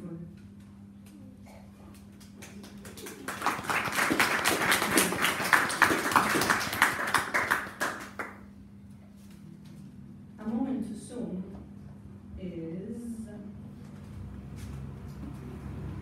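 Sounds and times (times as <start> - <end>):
audience clapping: 2.2 - 8.4.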